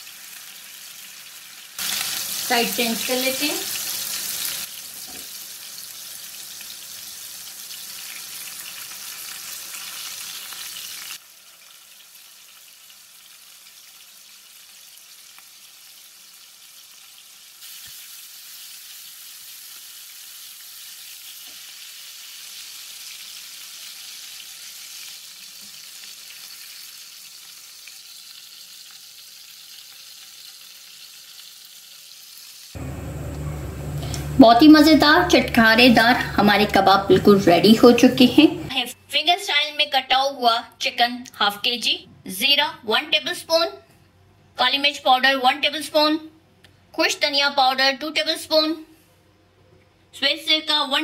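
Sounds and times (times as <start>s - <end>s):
meat sizzling in hot oil: 0.0s - 32.8s.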